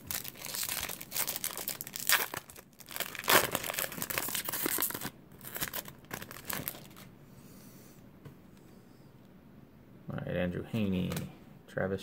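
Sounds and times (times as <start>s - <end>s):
foil wrapper crinkling: 0.0s - 7.1s.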